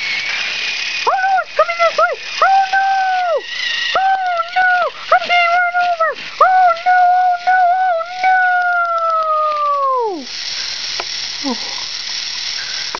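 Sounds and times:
steady hiss: 0:00.0 - 0:12.9
person wailing in falsetto: 0:04.0 - 0:10.2.

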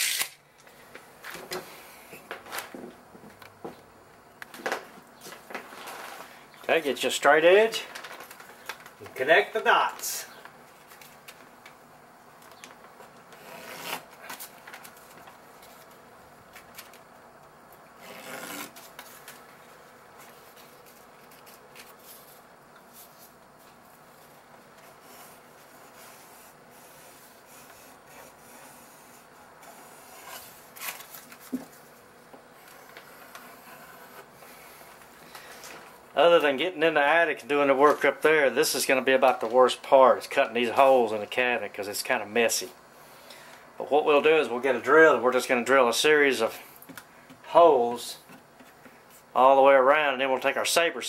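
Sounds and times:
pencil scratching on wood: 0:25.0 - 0:30.4.

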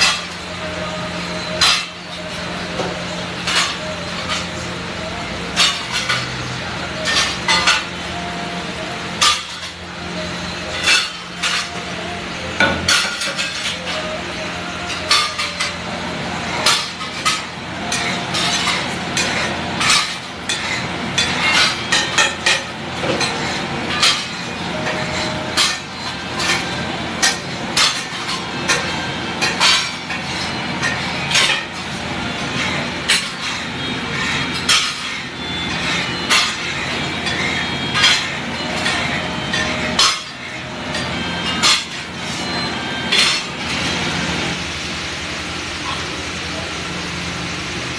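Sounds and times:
metal spatula scraping on griddle: 0:05.5 - 0:07.9, 0:16.6 - 0:31.8, 0:32.4 - 0:43.4.

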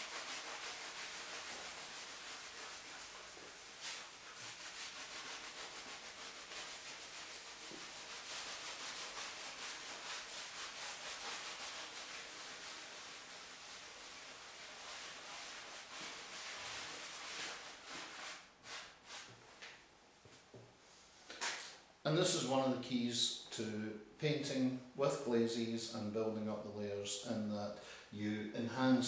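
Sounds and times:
cloth scrubbing a canvas: 0:00.0 - 0:19.3.

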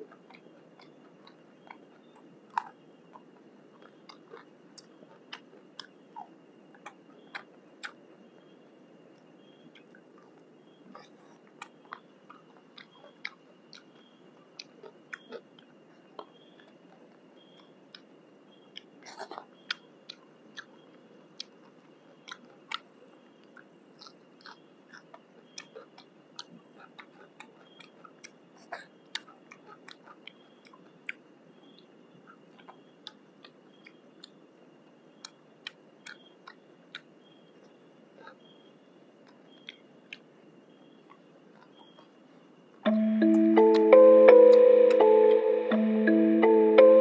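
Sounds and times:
chewing and picking at food: 0:00.0 - 0:34.5, 0:35.1 - 0:42.8
steady low rush: 0:42.8 - 0:47.0.

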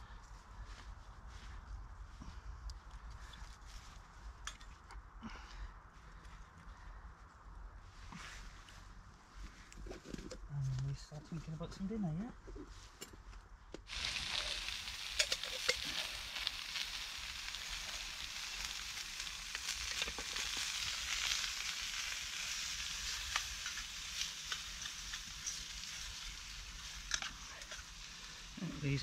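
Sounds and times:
sausages sizzling in a frying pan: 0:13.9 - 0:29.0.

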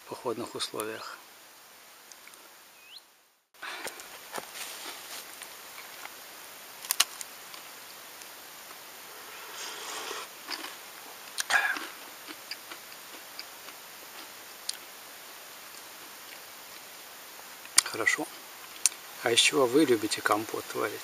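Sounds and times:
person slurping from mug: 0:09.0 - 0:10.8.

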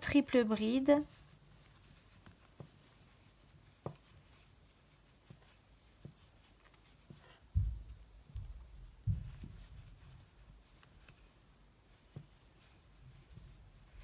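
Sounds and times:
soft yarn handling noise: 0:00.0 - 0:14.0
dull low thump: 0:07.5 - 0:09.8.

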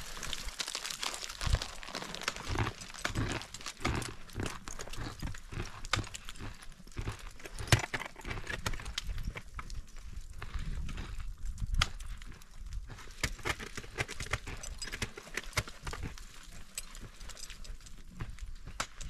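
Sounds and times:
knocks clicks and scrapes: 0:07.4 - 0:09.5.

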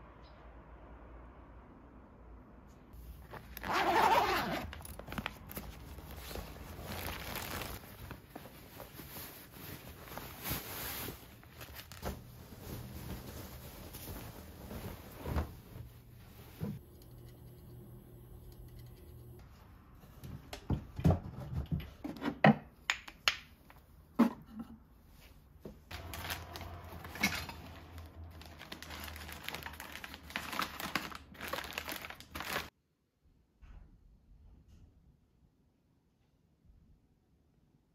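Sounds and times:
plastic packaging crinkling: 0:03.2 - 0:15.2, 0:25.9 - 0:32.7.

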